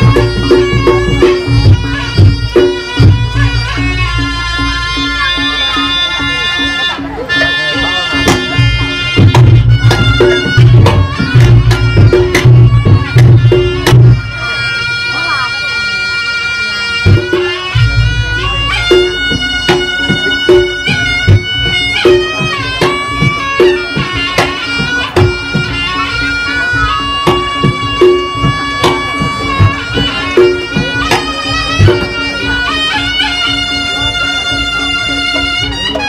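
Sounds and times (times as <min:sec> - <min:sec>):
shrill double-reed melody: 0:00.0 - 0:36.0
steady drum strokes: 0:17.0 - 0:36.0.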